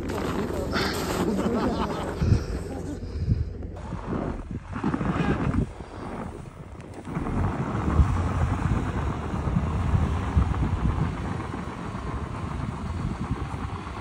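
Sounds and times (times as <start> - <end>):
wheels spinning in snow: 0.0 - 14.0
car engine revving: 3.8 - 14.0.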